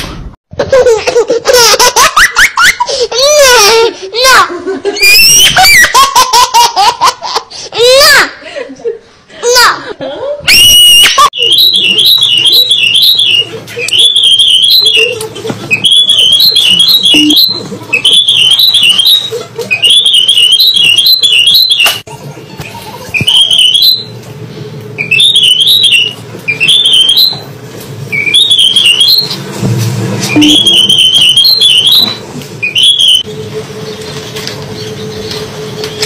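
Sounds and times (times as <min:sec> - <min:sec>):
cockatiel whistling: 0:10.5 - 0:22.0, 0:25.0 - 0:27.4, 0:28.1 - 0:29.3.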